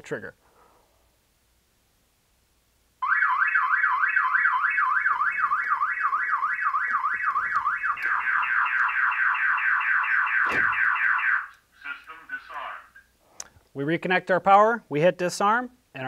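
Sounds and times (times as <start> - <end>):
car alarm siren warbling: 3.0 - 11.6.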